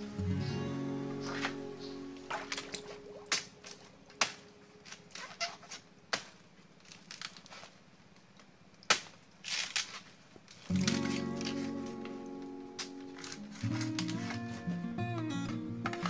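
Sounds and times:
branches rustling: 0:00.0 - 0:16.0
machete chopping branches: 0:02.3 - 0:05.2, 0:08.9 - 0:10.0, 0:10.7 - 0:11.8, 0:12.8 - 0:14.6.

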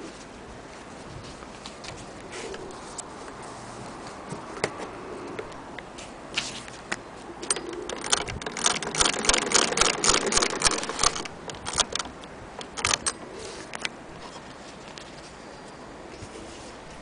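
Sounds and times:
hand-crank sewing machine clacking: 0:07.5 - 0:13.2.

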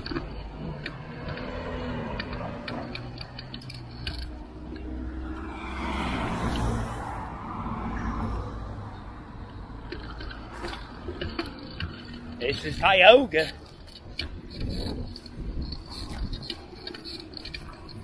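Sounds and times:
street traffic hum: 0:00.0 - 0:18.0
car passing by: 0:01.0 - 0:10.9.

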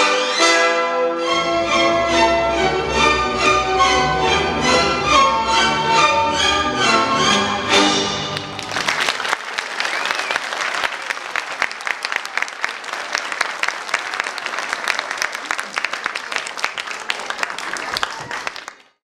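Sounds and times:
orchestral music: 0:00.0 - 0:09.2
audience applauding: 0:08.2 - 0:19.0.

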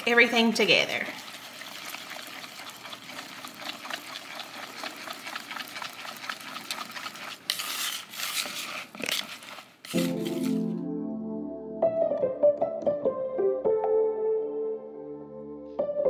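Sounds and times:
whisk scraping plastic bowl: 0:01.1 - 0:10.7.

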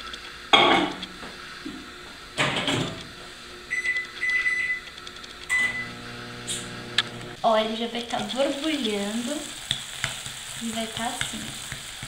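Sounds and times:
microwave oven humming: 0:00.0 - 0:12.0
short keypad beeps: 0:03.7 - 0:04.8, 0:05.5 - 0:05.9.

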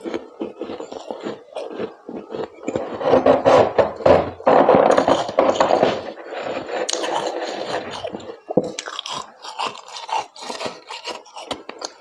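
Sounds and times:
utensil scraping freezer frost: 0:00.0 - 0:12.0.

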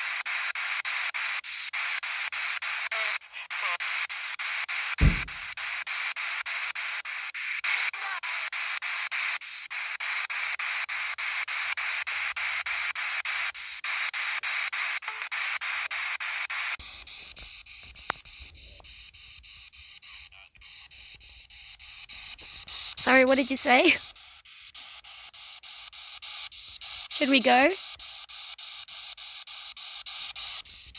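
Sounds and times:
pulsing radio static: 0:22.2 - 0:24.1, 0:27.1 - 0:27.8.

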